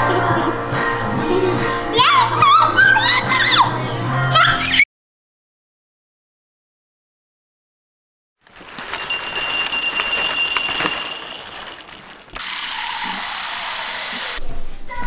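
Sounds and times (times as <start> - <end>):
kibble pouring into ceramic bowl: 8.4 - 12.6.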